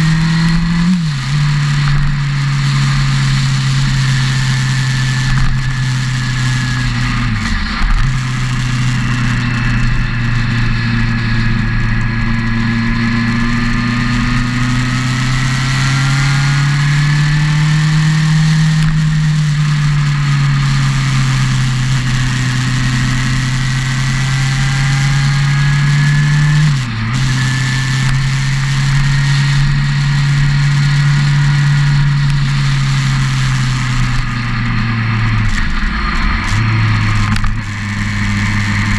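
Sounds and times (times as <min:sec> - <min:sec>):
motorcycle engine cruising: 0:00.0 - 0:38.9.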